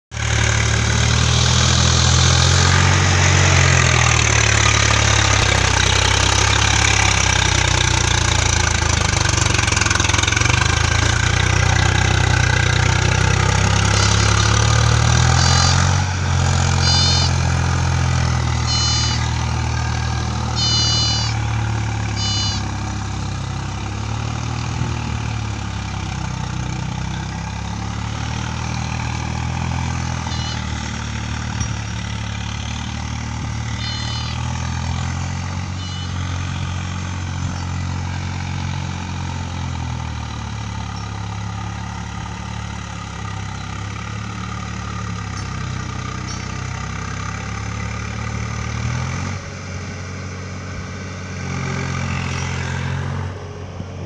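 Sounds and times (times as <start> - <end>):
tractor diesel engine running: 0.1 - 54.0
short high chirps: 15.4 - 15.8, 16.8 - 17.4, 18.7 - 19.4, 20.6 - 21.4, 22.2 - 22.7, 30.2 - 30.7, 33.8 - 34.5, 35.8 - 36.3.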